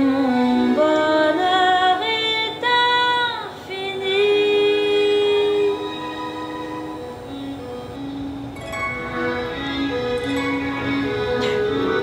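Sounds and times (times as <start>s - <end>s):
woman singing wordless held notes: 0.0s - 6.3s.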